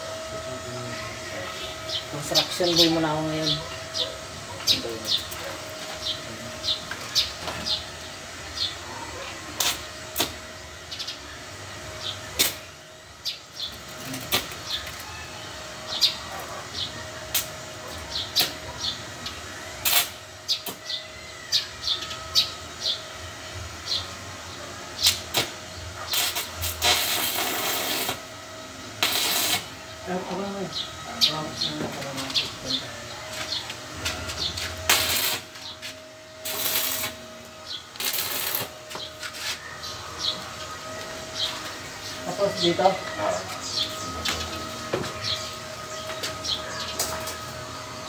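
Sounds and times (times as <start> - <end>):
birds chirping: 0.4 - 9.6, 10.3 - 26.6, 28.6 - 48.0
welding arc crackling: 9.5 - 11.3, 12.0 - 21.0, 25.0 - 30.6, 33.4 - 39.5.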